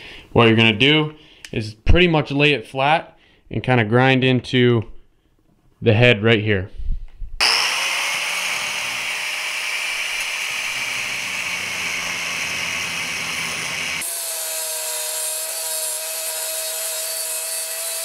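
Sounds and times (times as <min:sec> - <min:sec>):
angle grinder grinding steel: 0:07.4 - 0:18.0.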